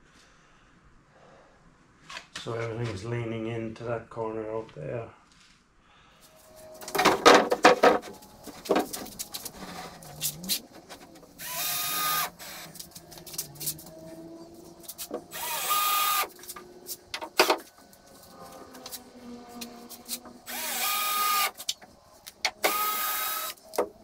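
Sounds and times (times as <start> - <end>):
cordless drill driving screws: 11.3 - 12.7, 15.0 - 16.4, 20.4 - 21.6, 22.5 - 23.6.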